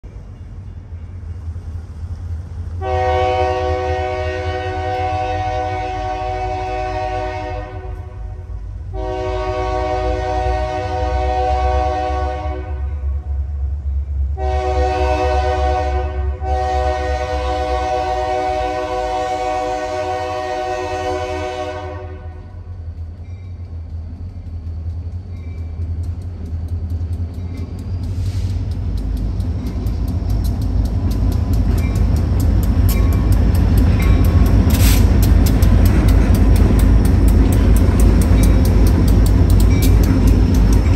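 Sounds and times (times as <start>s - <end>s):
diesel engines rumbling: 0.0s - 40.9s
locomotive air horn blasts: 2.8s - 13.2s, 14.4s - 22.6s.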